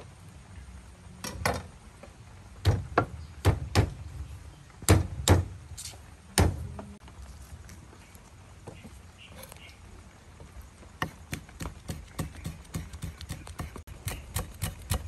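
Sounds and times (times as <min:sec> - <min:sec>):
knife chopping on wooden block: 0:11.0 - 0:15.0.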